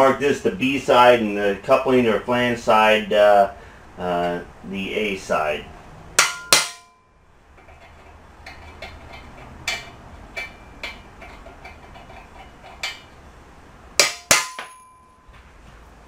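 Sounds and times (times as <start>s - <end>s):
hammer striking steel punch: 6.2s - 7.0s, 14.0s - 15.2s.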